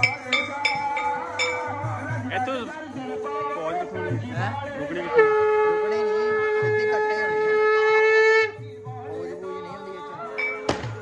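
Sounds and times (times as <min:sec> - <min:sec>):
horn long steady note: 0:04.8 - 0:08.7.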